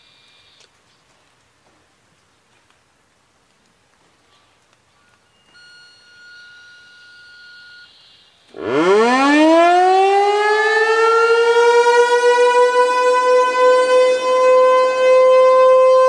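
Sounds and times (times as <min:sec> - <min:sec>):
faint steady high tone: 0:00.0 - 0:00.7, 0:04.3 - 0:08.7
warning siren wailing: 0:07.6 - 0:16.0.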